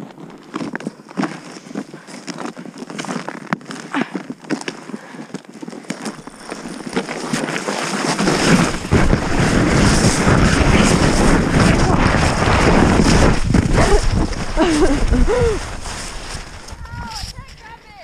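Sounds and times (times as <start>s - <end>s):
sled runners scraping on snow: 0.0s - 18.0s
wind rushing over microphone: 8.0s - 17.9s.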